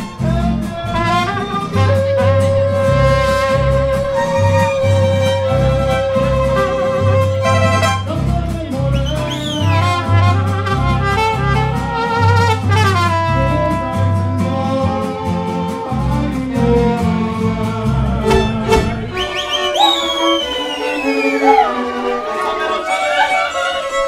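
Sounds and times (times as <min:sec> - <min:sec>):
bowed violins melody: 0:00.0 - 0:08.2, 0:18.2 - 0:24.0
plucked bass line: 0:00.0 - 0:09.0, 0:09.7 - 0:19.4
strummed guitars: 0:00.0 - 0:22.5.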